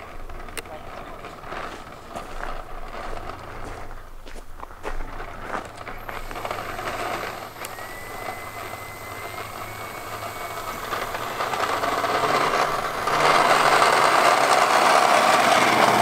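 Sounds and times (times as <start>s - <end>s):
model plane electric motor: 5.0s - 16.0s.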